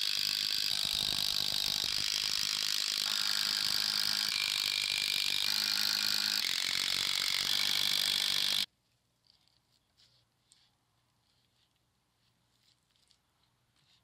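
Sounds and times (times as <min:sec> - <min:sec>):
power driver driving screws: 0:00.0 - 0:08.7.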